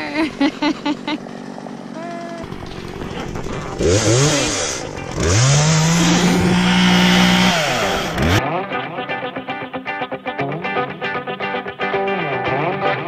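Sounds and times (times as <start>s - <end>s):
chainsaw revving and cutting: 0.0s - 8.4s
guitar music: 2.0s - 13.0s.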